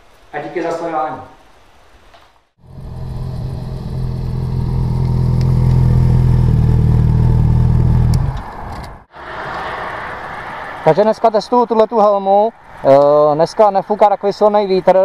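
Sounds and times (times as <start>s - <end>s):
outdoor noise hiss: 0.0s - 7.4s, 8.2s - 15.0s
motorcycle engine idling: 2.6s - 8.4s.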